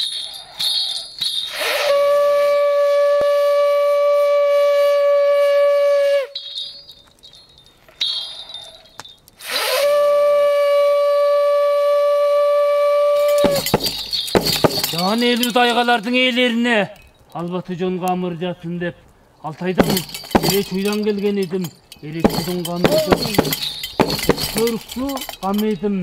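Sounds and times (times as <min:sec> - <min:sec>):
small bells jingling: 0:00.0 - 0:01.8, 0:06.4 - 0:09.4, 0:13.2 - 0:17.6, 0:19.4 - 0:26.0
horn blowing long notes: 0:01.8 - 0:06.3, 0:09.6 - 0:13.5.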